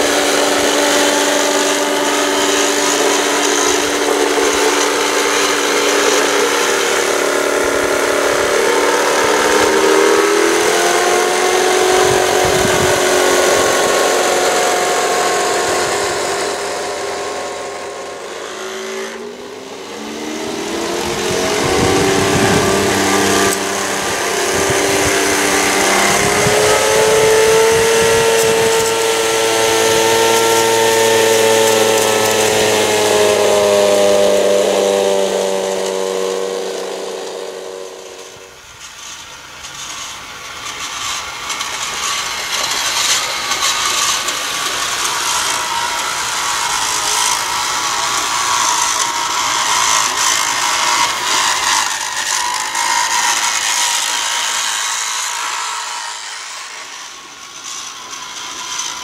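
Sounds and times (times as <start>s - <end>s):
electric motor whining: 0.0s - 59.0s
model train plough scraping and rattling: 0.0s - 59.0s.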